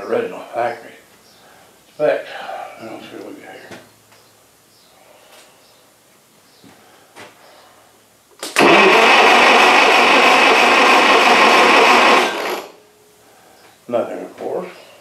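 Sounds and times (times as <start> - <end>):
engine cranked by starter: 8.4 - 12.8.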